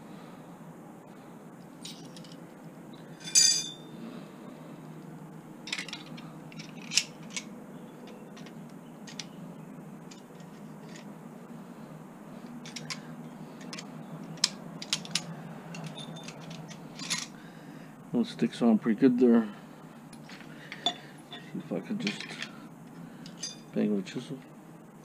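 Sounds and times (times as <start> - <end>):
ringing metal clink: 3.2 - 3.9, 15.8 - 17.3, 20.8 - 22.4, 23.3 - 23.8
small metallic clicks: 5.7 - 9.4, 10.1 - 11.1, 12.6 - 17.4.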